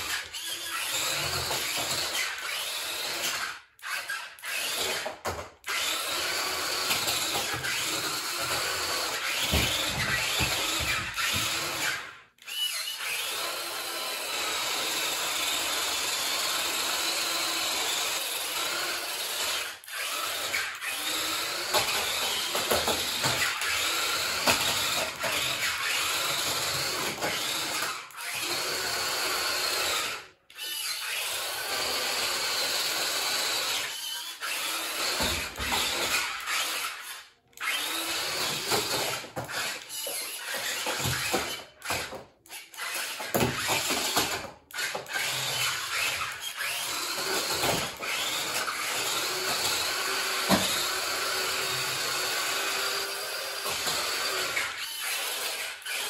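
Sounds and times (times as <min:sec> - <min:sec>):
toy car motors whirring: 0:00.0 - 0:56.0.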